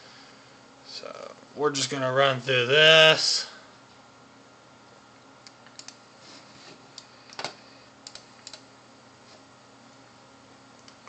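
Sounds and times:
computer mouse clicks: 0:05.6 - 0:06.0, 0:07.0 - 0:08.6.

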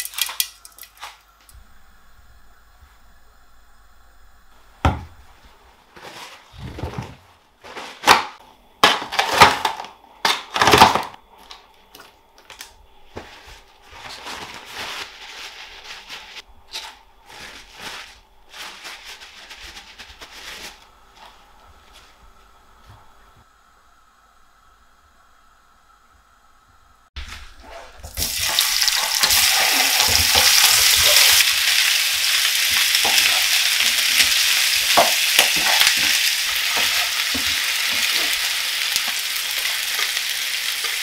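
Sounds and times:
paper towel crinkling: 0:13.0 - 0:22.4.

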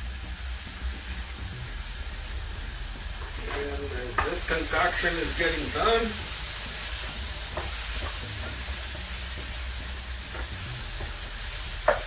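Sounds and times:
food sizzling in a pan: 0:00.0 - 0:12.0
spatula tapping a pan: 0:03.5 - 0:04.4, 0:06.7 - 0:09.7, 0:11.8 - 0:12.0.

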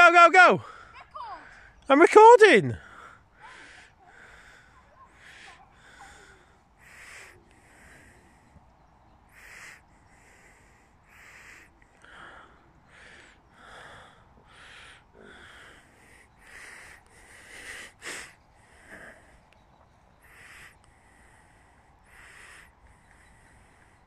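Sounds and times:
wheezy breathing close up: 0:02.8 - 0:24.0.

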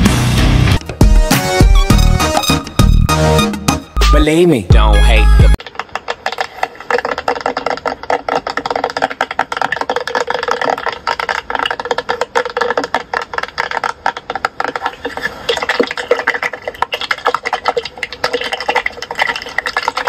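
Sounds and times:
rapid crackle of clicks: 0:05.6 - 0:20.0.

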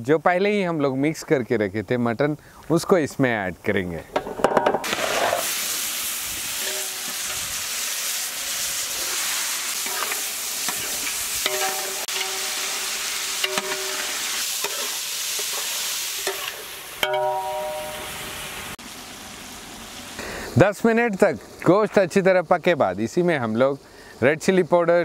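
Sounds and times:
meat sizzling in hot fat: 0:04.8 - 0:21.1
metal spatula scraping pot: 0:06.6 - 0:07.4, 0:09.8 - 0:16.6.

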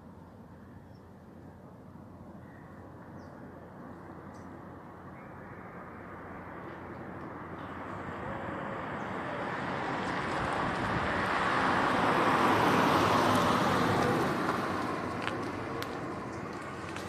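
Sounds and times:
car passing by: 0:06.1 - 0:17.0.

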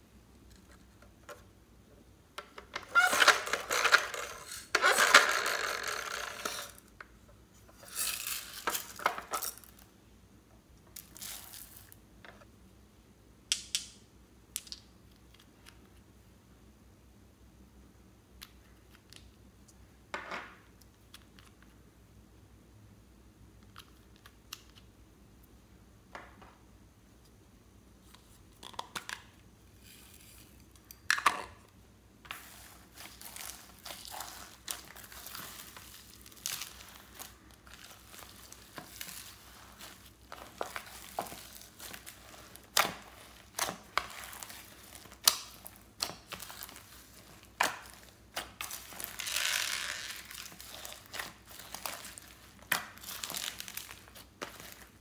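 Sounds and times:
slime crackling and popping: 0:33.1 - 0:54.7.

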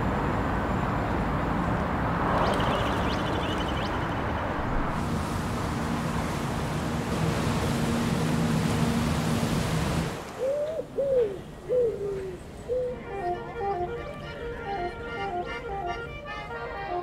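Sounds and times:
boat engine hum: 0:00.0 - 0:17.0
rushing water: 0:02.0 - 0:11.0
pigeon cooing: 0:10.4 - 0:13.8.

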